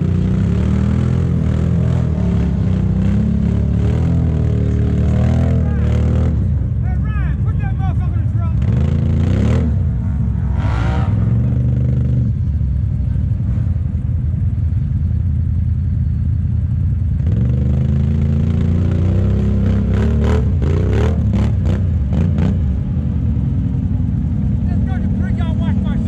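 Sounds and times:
atv engine revving: 0.0s - 15.2s, 15.8s - 26.0s
atv engine idling: 11.4s - 18.3s, 22.8s - 26.0s.

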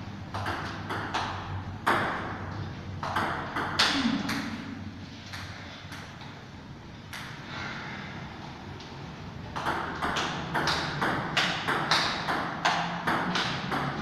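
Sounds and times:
table tennis ball hits: 0.3s - 2.4s, 3.0s - 6.2s, 9.5s - 14.0s.

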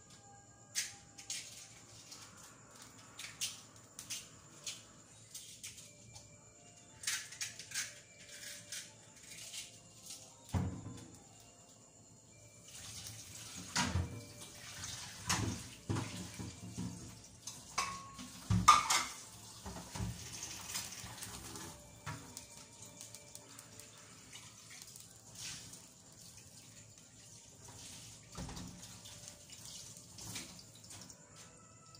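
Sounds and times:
water running in sink: 12.6s - 31.9s
dishes and pots clattering: 13.6s - 14.4s, 15.2s - 22.2s.

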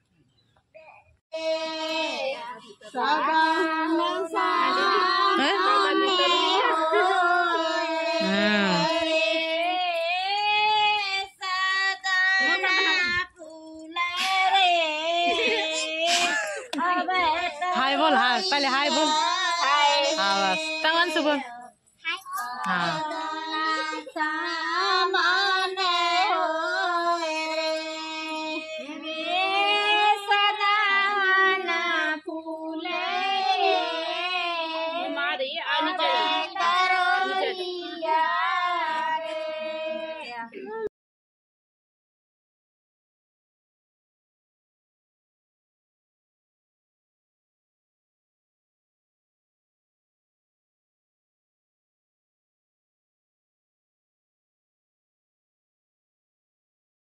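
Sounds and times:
high-pitched voices singing: 1.4s - 40.9s
high voice singing long notes: 3.0s - 16.8s.

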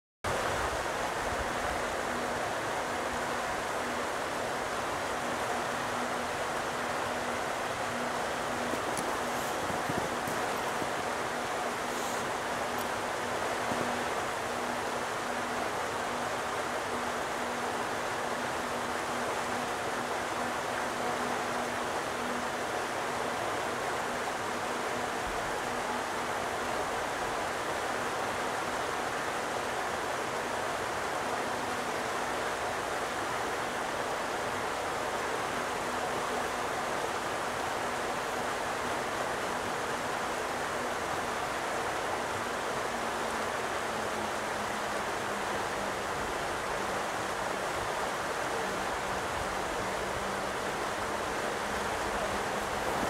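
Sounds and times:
stream rushing over stones: 0.3s - 53.0s.

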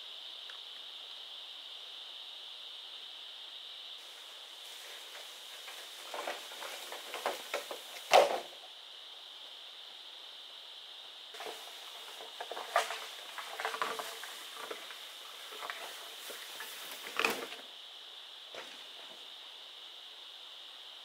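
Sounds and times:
high-pitched hiss: 0.0s - 21.0s
wooden knocks and clatter: 4.7s - 8.6s, 11.4s - 17.6s.

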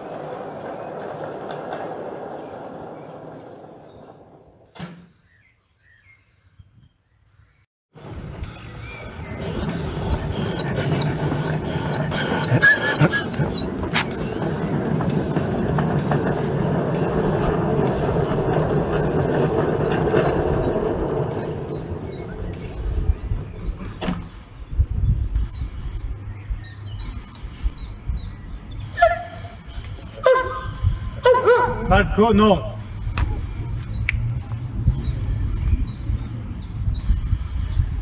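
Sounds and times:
wheels rumbling on rails: 0.0s - 6.0s, 7.9s - 38.0s
model steam locomotive running: 8.2s - 23.3s.

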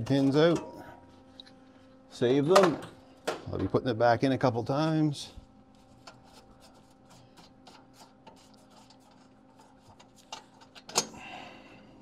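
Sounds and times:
metal plate clicking and rubbing: 5.9s - 11.1s.

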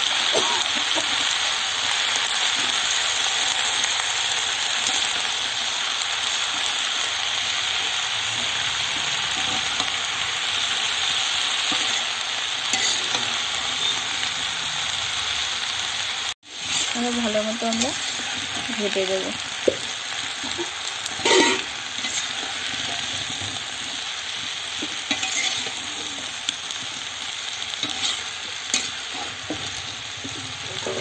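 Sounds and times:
vegetables sizzling in hot oil: 0.0s - 31.0s
spatula stirring: 24.8s - 27.0s.

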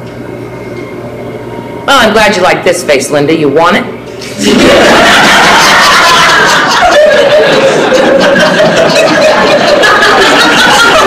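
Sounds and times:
audience laughing loudly: 4.4s - 11.0s.

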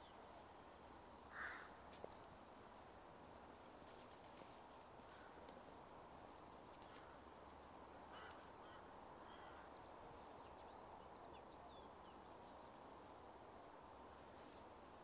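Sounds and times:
distant bird calls: 1.2s - 1.8s, 8.1s - 12.8s.

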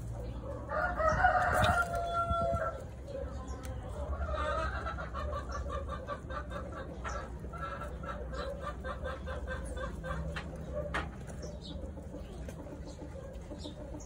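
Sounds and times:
chicken clucking: 0.0s - 14.0s.

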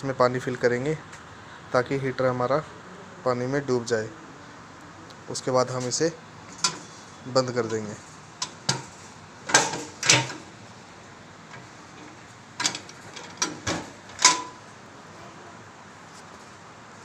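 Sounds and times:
metal lid knocks and clanks: 8.4s - 10.5s.

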